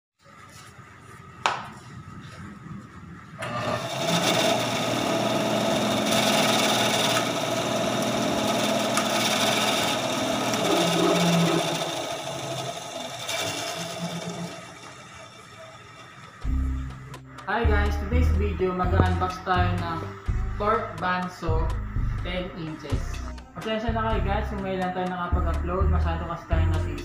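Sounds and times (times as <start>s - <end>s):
band saw running: 3.4s - 16.6s.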